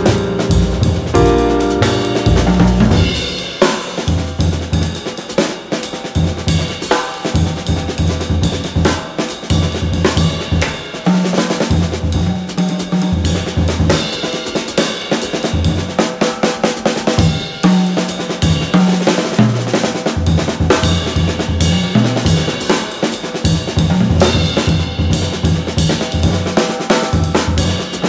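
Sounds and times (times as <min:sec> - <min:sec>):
bass line: 0:00.0 - 0:03.4
drum kit beat: 0:00.0 - 0:28.0.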